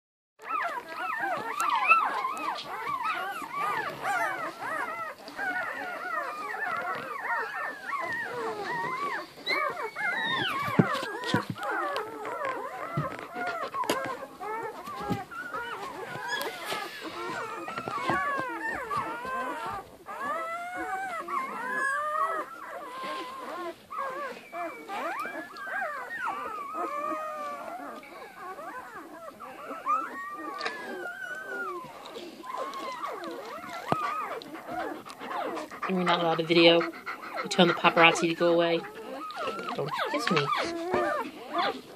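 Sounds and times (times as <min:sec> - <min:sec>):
puppies whining and squeaking: 0:00.4 - 0:41.9.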